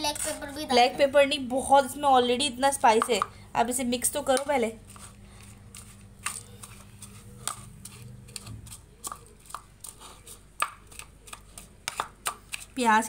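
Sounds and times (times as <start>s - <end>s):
spoon stirring crunchy food: 4.0s - 13.0s.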